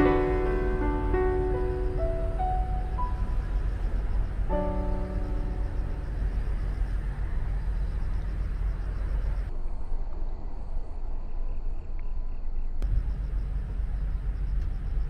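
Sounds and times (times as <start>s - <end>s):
faint hiss: 0.0s - 9.8s
low outdoor rumble: 0.0s - 15.0s.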